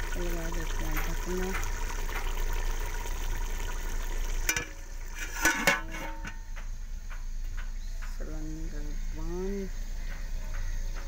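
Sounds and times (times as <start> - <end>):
curry sizzling in a pot: 0.0 - 6.9
metal lid clanking on pot: 4.4 - 6.7.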